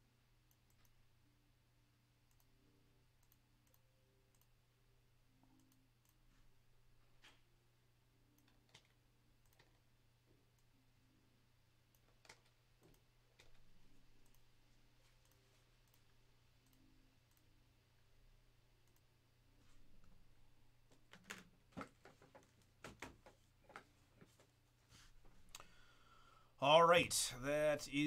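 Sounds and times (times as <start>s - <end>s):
computer mouse clicks: 0.5s - 1.0s, 2.3s - 2.5s, 3.2s - 4.5s, 5.4s - 6.2s, 8.3s - 9.9s, 11.9s - 14.5s, 15.1s - 17.5s, 18.8s - 19.1s
keyboard clicks: 8.3s - 9.8s.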